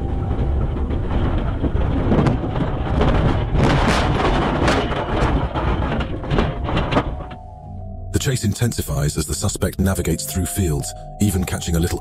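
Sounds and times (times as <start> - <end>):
jolting knocks and bangs: 0.0 - 7.5
engine and tyre rumble: 0.0 - 8.2.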